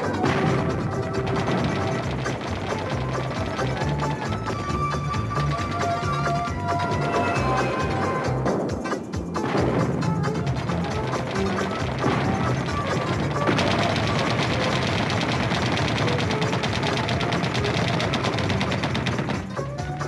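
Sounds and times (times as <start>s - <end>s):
rapid machine-gun fire: 0.0s - 8.3s, 9.3s - 20.0s
background music: 0.0s - 20.0s.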